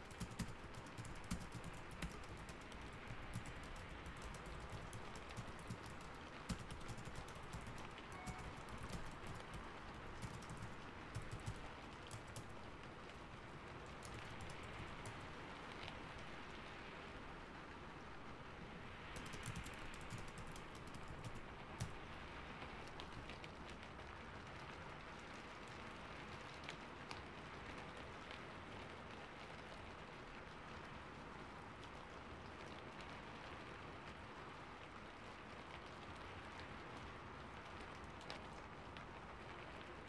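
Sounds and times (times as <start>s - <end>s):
keyboard typing clicks: 0.0s - 12.7s, 14.0s - 15.2s, 19.2s - 22.1s.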